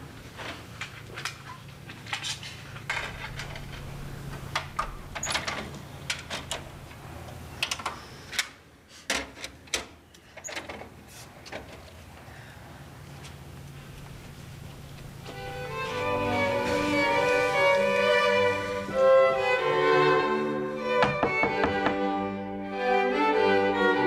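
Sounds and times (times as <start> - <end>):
faint steady hum: 0.0 - 9.0, 11.0 - 21.0.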